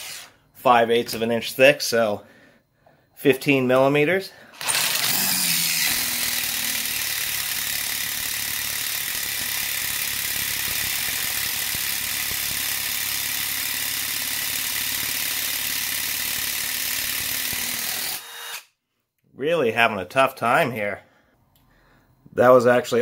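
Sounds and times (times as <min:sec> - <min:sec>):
impact driver hammering: 0:04.6 - 0:18.6.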